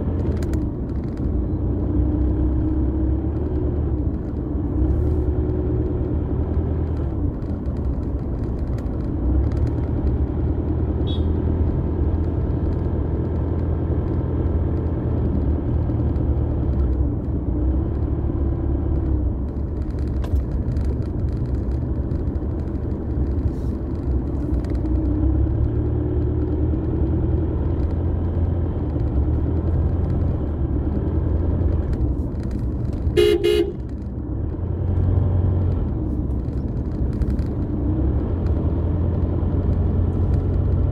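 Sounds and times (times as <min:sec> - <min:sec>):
car engine and tyre rumble: 0:00.0 - 0:40.9
car horn toot: 0:11.0 - 0:11.4, 0:33.2 - 0:33.8.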